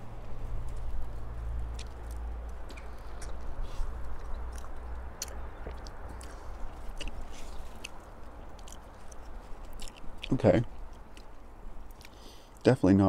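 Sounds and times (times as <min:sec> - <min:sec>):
steady low rumble: 0:00.0 - 0:12.7
person chewing: 0:01.7 - 0:12.6
mouth clicks: 0:04.1 - 0:12.6.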